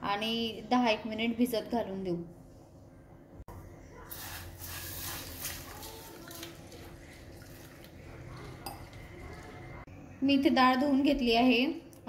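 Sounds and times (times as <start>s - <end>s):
water pouring into steel bowl: 4.1s - 9.8s.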